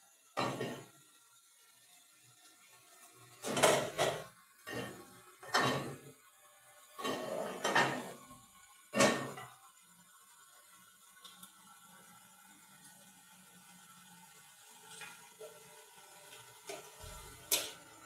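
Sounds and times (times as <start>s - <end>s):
cookware knocks and clanks: 0.4s - 0.9s, 3.4s - 6.0s, 7.0s - 8.2s, 9.0s - 9.5s.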